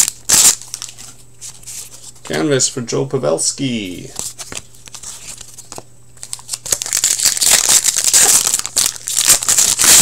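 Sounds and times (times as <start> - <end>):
card pack wrapper crinkling: 0.0 - 1.1, 4.2 - 10.0.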